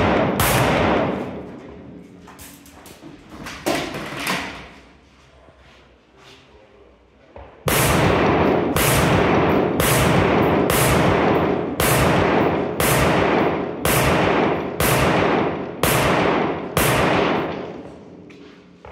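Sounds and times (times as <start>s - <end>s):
rifle shots echoing: 0.0s - 1.9s, 7.7s - 18.3s.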